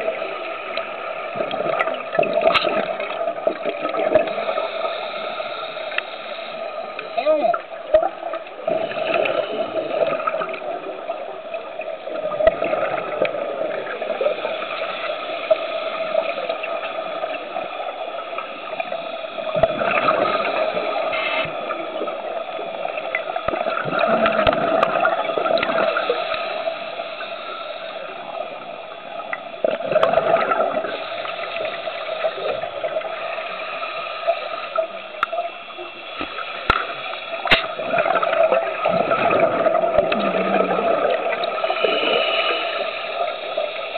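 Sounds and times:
exhaled bubbles gurgling: 0.0 - 43.9
steady hum: 0.0 - 43.9
scuba regulator breathing: 3.9 - 7.2, 13.3 - 43.9.

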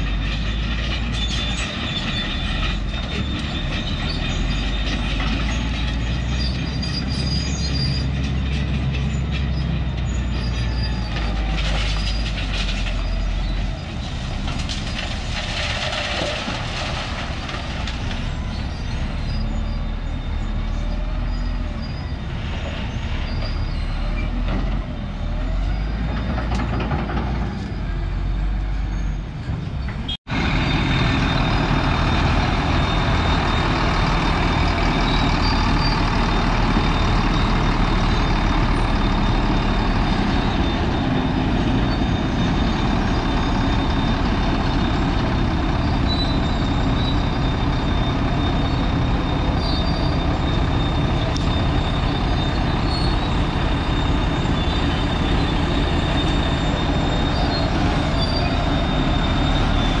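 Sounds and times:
vehicle engine and road noise: 0.0 - 60.0.

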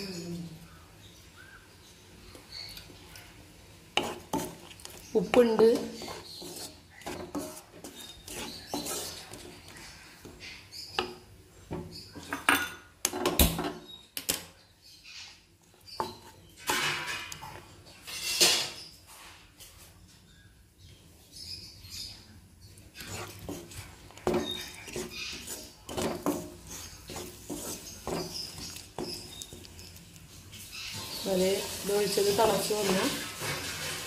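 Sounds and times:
wooden spatula scraping a pan: 3.9 - 12.4, 15.9 - 20.0, 22.8 - 34.0.

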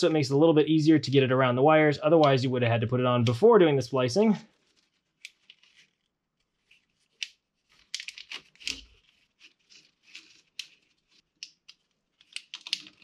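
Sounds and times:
plastic wire loom crinkling: 4.4 - 13.0.

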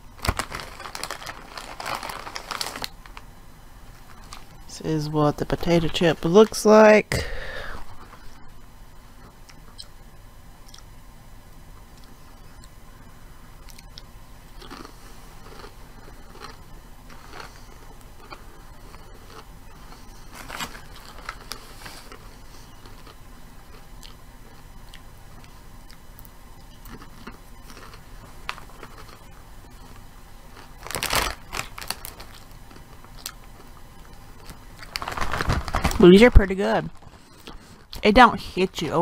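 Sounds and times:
chip bag rustling: 0.0 - 3.2, 14.6 - 23.8, 26.9 - 33.7, 34.3 - 37.8
person chewing potato chips: 0.2 - 3.2, 10.6 - 10.9, 13.6 - 36.0, 36.9 - 38.0.

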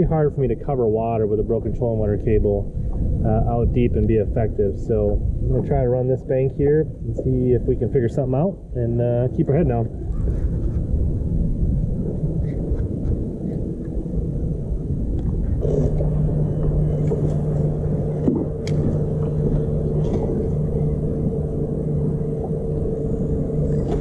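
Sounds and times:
wind rumbling on microphone: 0.0 - 24.0
electric motor humming: 15.2 - 24.0.

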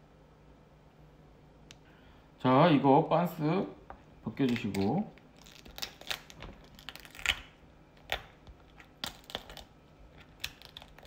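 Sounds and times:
crab shell cracking: 4.4 - 11.0.

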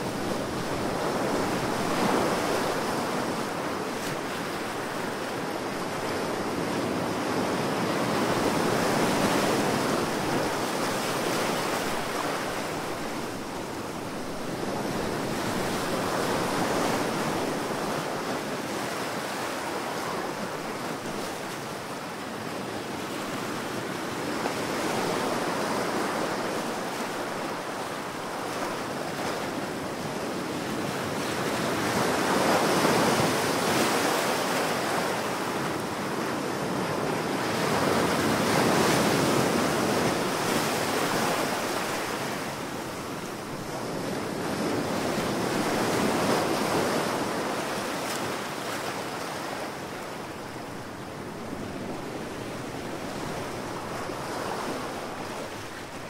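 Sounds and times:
ocean waves breaking: 23.1 - 56.0.

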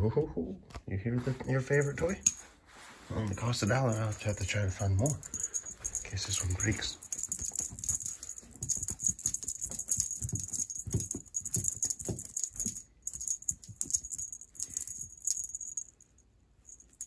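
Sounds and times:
crinkly streamers rattling: 3.2 - 15.9.

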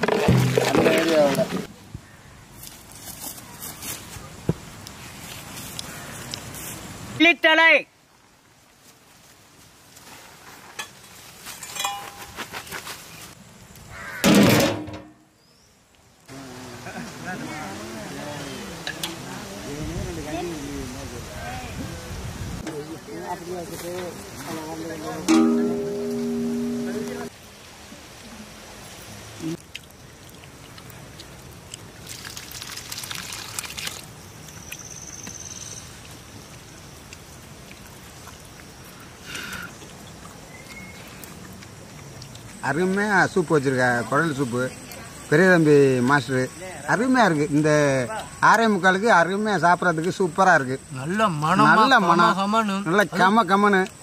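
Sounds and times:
light clinks and rustles: 10.6 - 12.9
metal lid clattering on pot: 11.7 - 12.2
high pulsing trill: 25.3 - 27.3.

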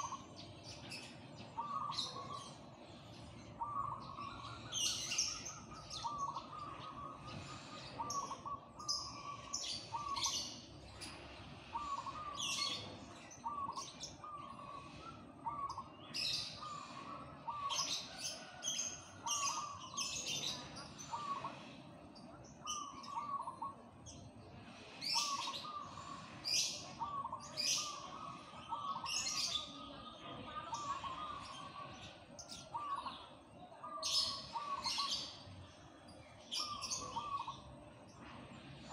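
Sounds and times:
small birds chirping: 0.0 - 38.9
dove cooing: 1.5 - 2.7, 3.5 - 10.4, 11.6 - 18.6, 19.2 - 21.7, 22.7 - 23.8, 25.0 - 29.7, 30.5 - 35.3, 36.5 - 37.7.

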